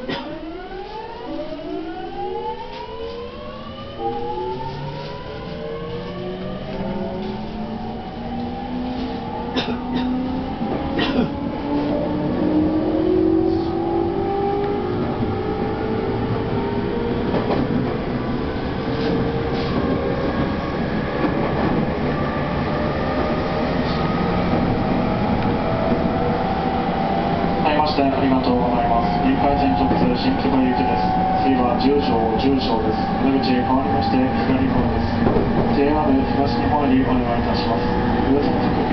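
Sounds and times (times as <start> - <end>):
train wheels rumbling: 2.5 - 38.9
wheels clacking on track: 29.0 - 38.9.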